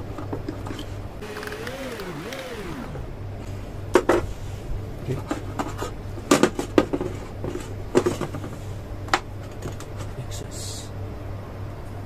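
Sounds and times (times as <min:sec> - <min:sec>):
steady low hum: 0:01.2 - 0:03.5.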